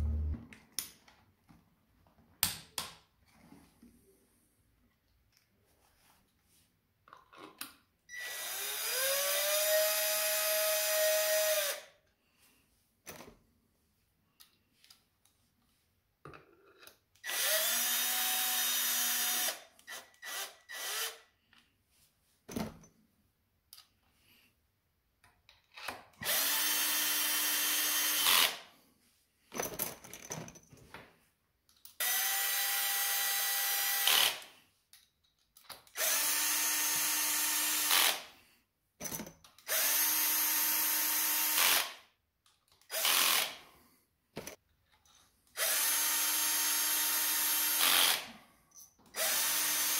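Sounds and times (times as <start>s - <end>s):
drill clicks: 35.8s - 38.2s
cordless drill motor whine: 49.2s - 49.9s.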